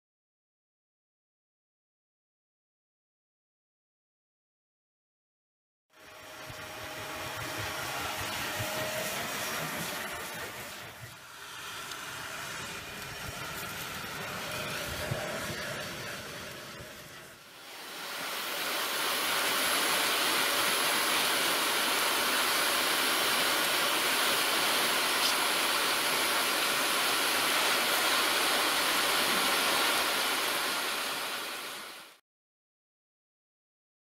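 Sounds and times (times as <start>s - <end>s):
vacuum cleaner running: 6.0s - 32.1s.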